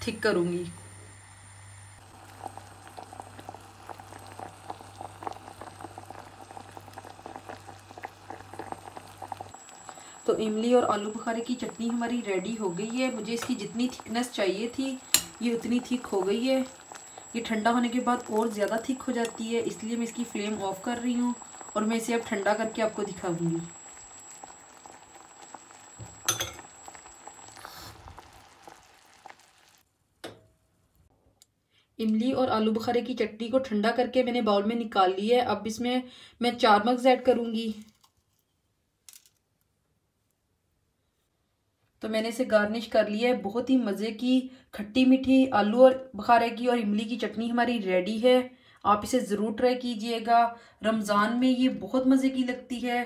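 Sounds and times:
thick sauce boiling and popping: 2.0 - 30.3
sharp clink: 15.1 - 15.4.

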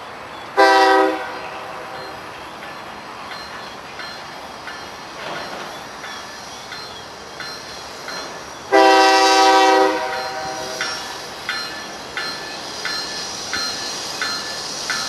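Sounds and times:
faint train rumble: 0.0 - 15.0
locomotive air horn blast: 0.6 - 2.0, 8.7 - 10.8.

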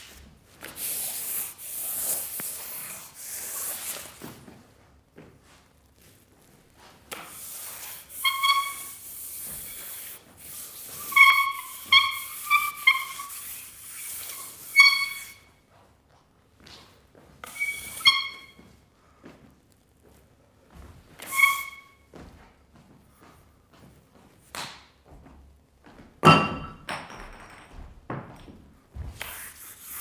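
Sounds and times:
charcoal scratching on paper: 0.8 - 4.2, 7.3 - 15.4, 29.2 - 30.0
charcoal squeaking on paper: 0.8 - 4.2, 7.1 - 15.6, 17.4 - 18.6, 21.2 - 22.1, 29.2 - 30.0.

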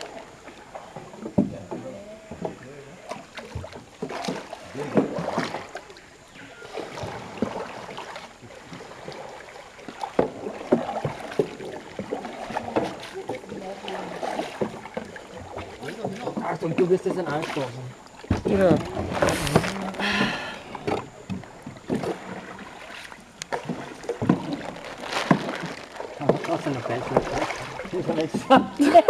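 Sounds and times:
canoe paddles through water: 0.0 - 29.0
paddle knocks and splashes: 0.0 - 29.0.

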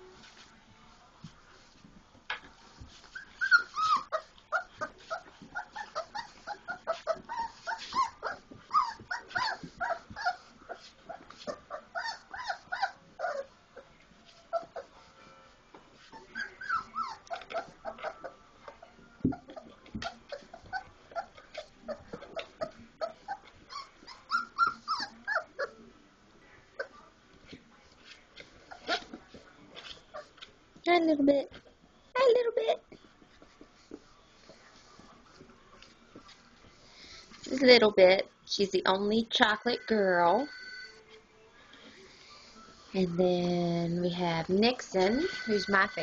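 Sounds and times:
puppies squeaking and whining: 3.0 - 13.5, 14.4 - 15.0, 16.1 - 18.4, 19.2 - 25.8, 28.6 - 29.2, 45.0 - 46.0.

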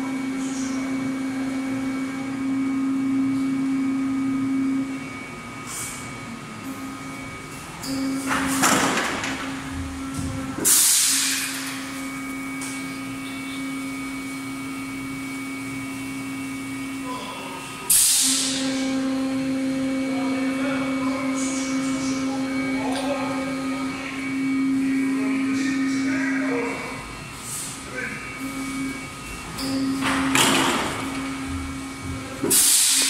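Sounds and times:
machine hum: 0.0 - 33.0.

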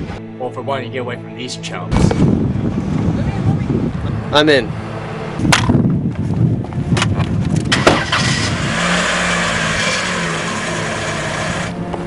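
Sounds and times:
car engine running: 6.7 - 12.0.

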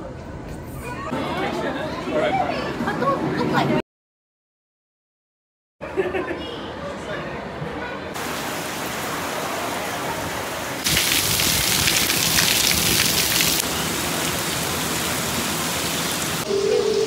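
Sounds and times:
heavy rain on paving and foliage: 8.2 - 16.5.

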